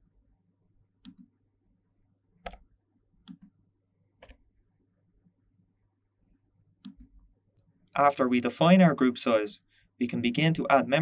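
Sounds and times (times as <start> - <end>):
mouse and keyboard clicks: 1.0 - 1.3, 2.4 - 3.5, 4.2 - 4.4.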